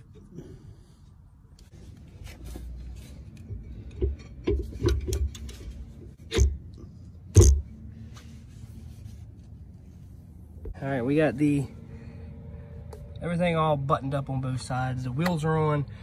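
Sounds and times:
metal clinks and knocks: 3.4 - 6.6.

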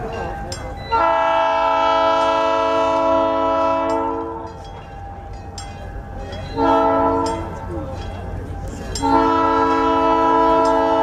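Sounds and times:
train horn blasts: 0.9 - 4.6, 6.6 - 7.5, 9.0 - 11.0.

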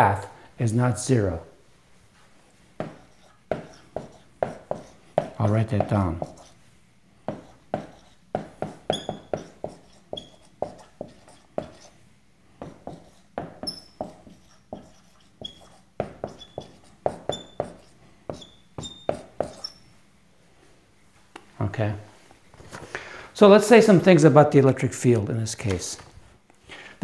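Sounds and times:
marker tapping on whiteboard: 2.8 - 6.5, 7.2 - 11.9, 12.6 - 19.8
marker squeaking on whiteboard: 2.8 - 6.6, 7.3 - 12.0, 12.6 - 19.9.

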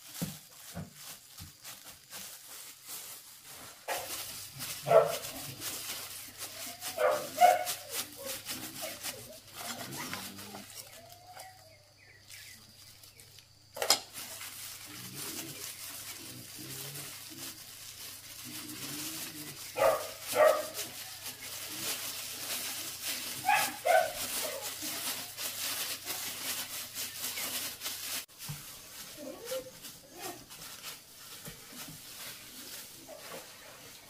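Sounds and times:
soft rustling: 0.0 - 34.0.

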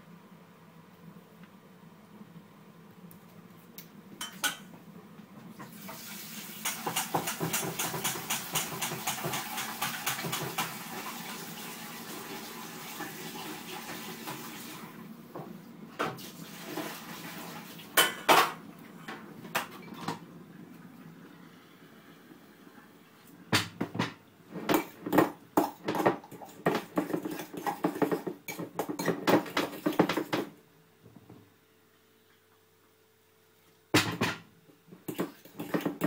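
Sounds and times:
pans and utensils clattering: 6.6 - 10.8, 23.9 - 30.5.

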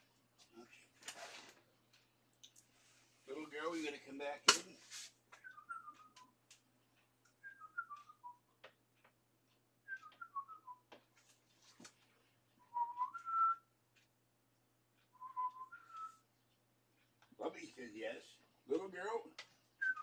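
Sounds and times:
person whistling: 5.4 - 6.2, 7.4 - 8.4, 9.9 - 10.9, 12.6 - 13.6, 15.2 - 16.2, 19.8 - 20.0.

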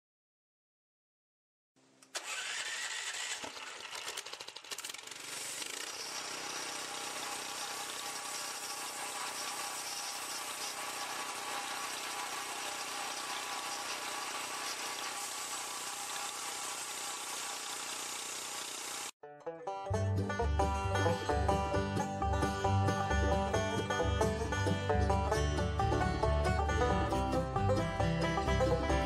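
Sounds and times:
small gasoline engine running: 2.1 - 19.2.

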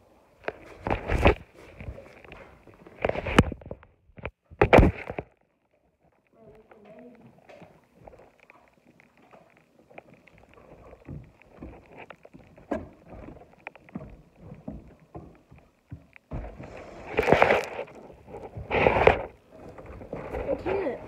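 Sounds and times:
rubbing against microphone: 16.4 - 21.0.

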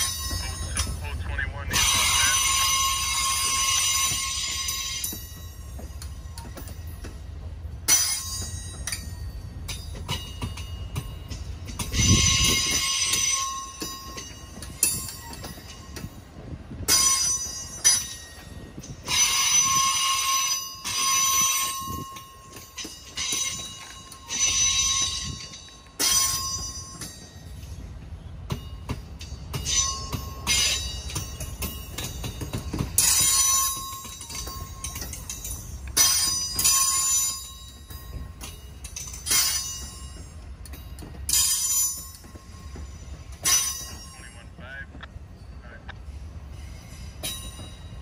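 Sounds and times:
low train rumble: 0.0 - 48.0
train wheels squealing on rails: 0.0 - 48.0
metallic wheel squeals: 1.7 - 7.0.

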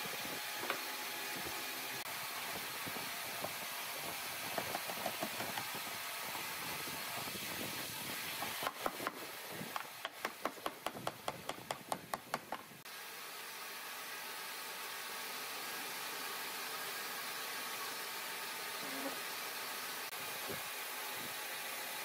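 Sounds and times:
wooden mallet knocking wood: 9.8 - 12.6.

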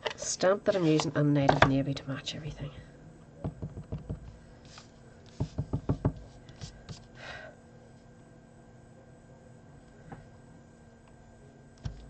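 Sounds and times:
stamp tapping on ink pad: 5.3 - 6.2.

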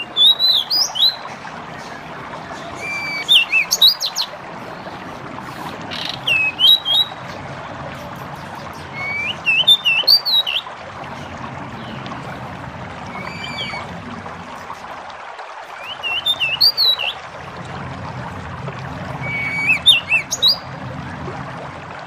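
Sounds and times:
bird whistling song: 0.0 - 1.3, 2.7 - 4.3, 5.9 - 7.2, 8.8 - 10.7, 13.1 - 13.9, 15.8 - 17.2, 19.2 - 20.7
running water: 0.0 - 22.0.

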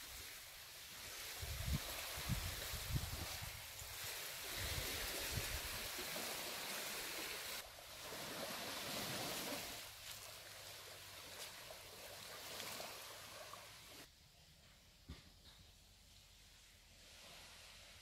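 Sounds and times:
sea waves washing on shore: 0.0 - 14.1
wind rumbling on microphone: 1.0 - 6.0.

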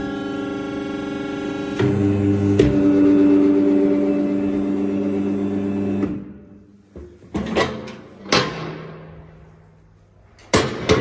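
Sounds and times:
metal door clanks and rattles: 7.3 - 9.1.

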